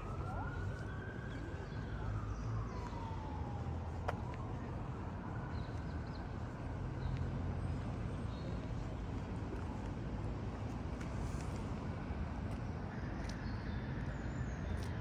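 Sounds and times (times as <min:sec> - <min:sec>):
distant siren wailing: 0:00.0 - 0:07.3
low traffic rumble: 0:00.0 - 0:15.0.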